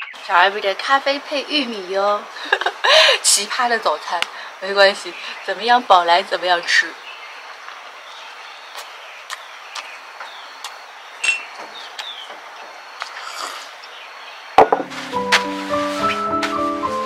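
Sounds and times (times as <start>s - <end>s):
falling bird chirps: 8.1s - 15.2s
loud knock: 14.6s - 14.9s
music: 14.6s - 17.0s.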